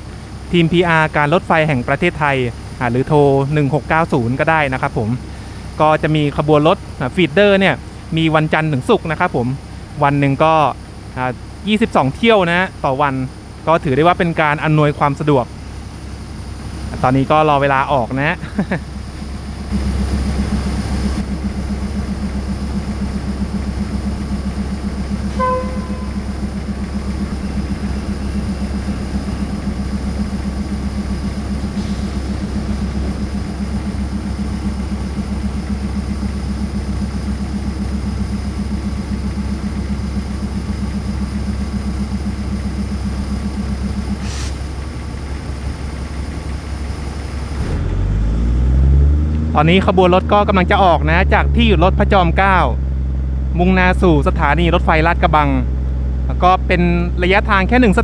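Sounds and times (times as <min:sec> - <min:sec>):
diesel engine idling hum: 0:00.0 - 0:58.0
brief pitched tone: 0:25.2 - 0:26.6.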